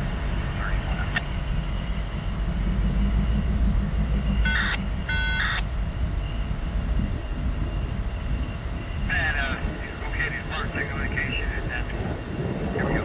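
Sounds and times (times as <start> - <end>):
diesel locomotive idling: 0.0 - 13.0
locomotive horn blasts: 4.5 - 5.7.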